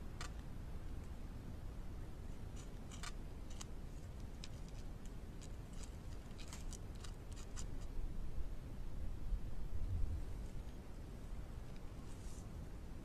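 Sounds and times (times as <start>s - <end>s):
beaver gnawing wood: 2.4s - 7.9s.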